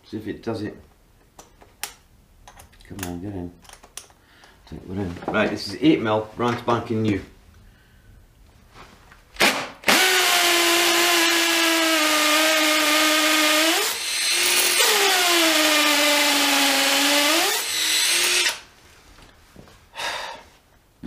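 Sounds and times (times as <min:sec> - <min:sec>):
hammer drill whining into brick: 0:09.8 - 0:18.6.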